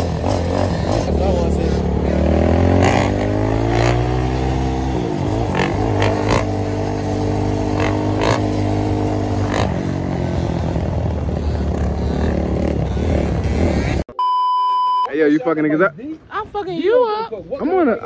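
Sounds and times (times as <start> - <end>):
dirt bike engine running: 0.0 - 14.0.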